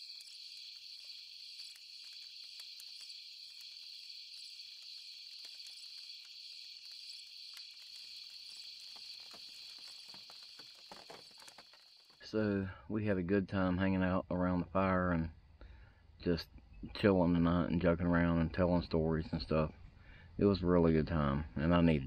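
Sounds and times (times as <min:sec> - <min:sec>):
campfire crackling: 0:00.0 - 0:12.3
night insects trilling: 0:00.0 - 0:12.6.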